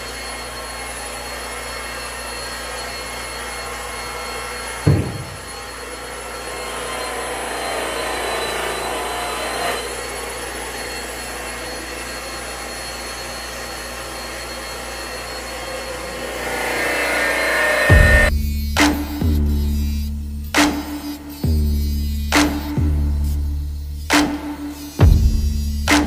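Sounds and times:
rotary polisher whirring: 0.0 - 18.3.

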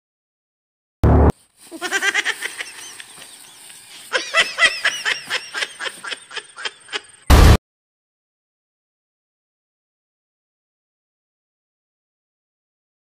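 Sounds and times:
high-pitched laughter: 1.7 - 7.3.

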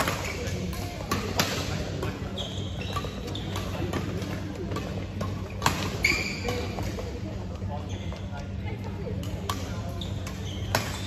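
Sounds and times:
sneakers squeaking on court floor: 0.0 - 8.6, 9.4 - 11.0.

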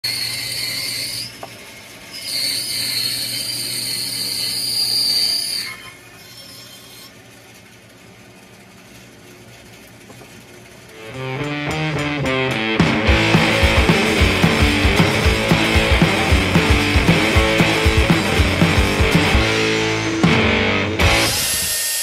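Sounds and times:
bandsaw cutting wood: 11.0 - 22.0.

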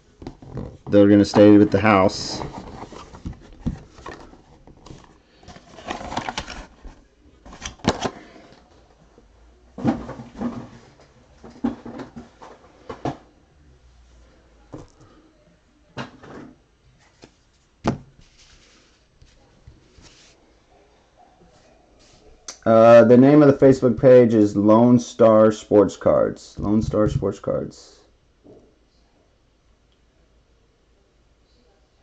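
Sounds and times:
cardboard boxes rustling and scraping: 0.3 - 8.7, 18.2 - 20.4.

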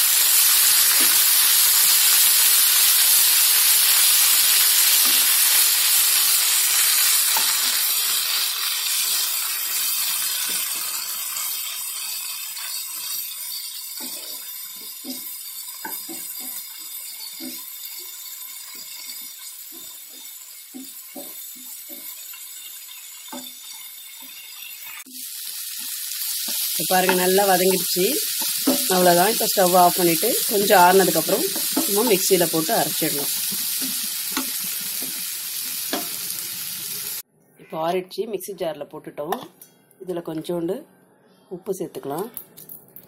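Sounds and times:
vegetables sizzling in hot oil: 0.0 - 37.2
spatula scraping a pan: 4.8 - 25.1, 28.3 - 36.6.

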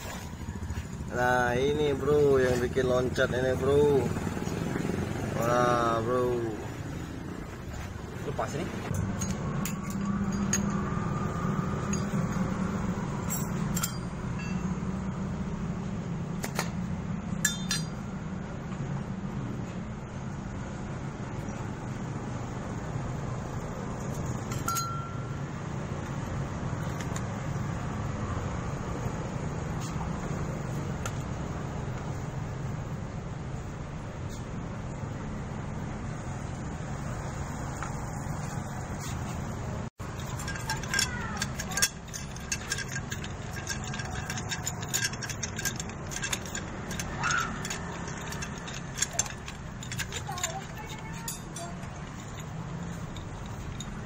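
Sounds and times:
metal clicks and scrapes: 8.8 - 14.6, 26.0 - 27.5, 40.0 - 54.0
metal part clinking on concrete: 8.9 - 14.9, 17.4 - 18.2, 24.0 - 27.3, 40.0 - 54.0.

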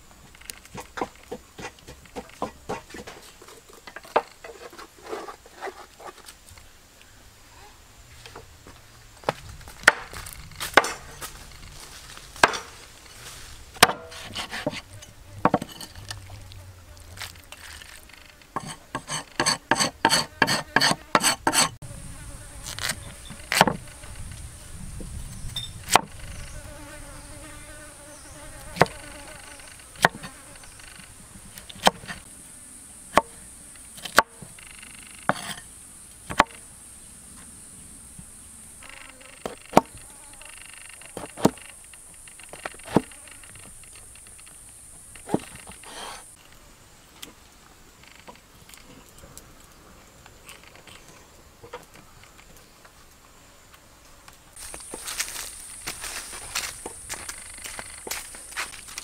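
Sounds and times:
high insect buzz: 5.3 - 47.1, 47.8 - 48.8, 50.3 - 59.0
chopping on wood: 9.8 - 11.1, 12.4 - 12.8, 13.8 - 14.8, 23.5 - 23.8, 25.9 - 26.2, 36.3 - 36.6.

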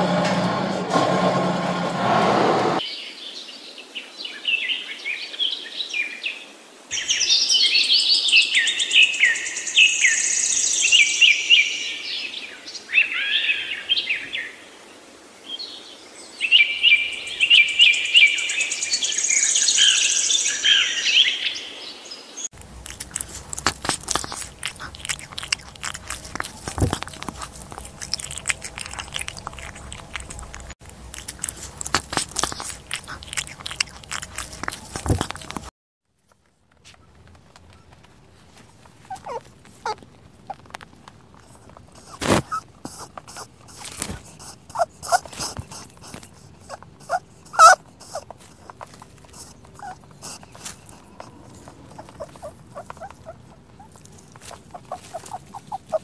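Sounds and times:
cats chewing and crunching food: 22.6 - 56.0
bird chirps and calls: 39.1 - 40.0, 51.9 - 56.0.

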